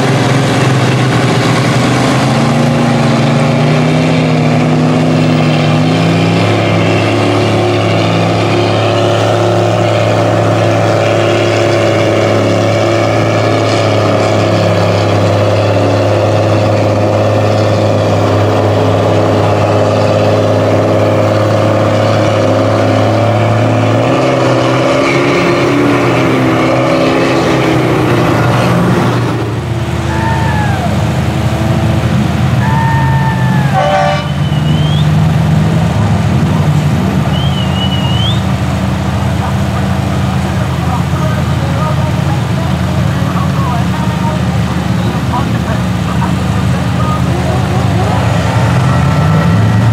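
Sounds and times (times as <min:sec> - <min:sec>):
short rising and falling whines: 0:00.0 - 0:35.4, 0:37.2 - 0:38.6
truck engines running hard: 0:00.0 - 0:49.9.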